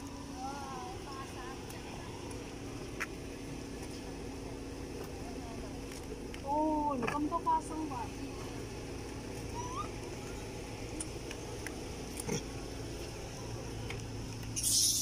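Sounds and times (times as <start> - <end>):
steady low hum: 0.0 - 15.0
faint rising squeak: 9.5 - 10.4.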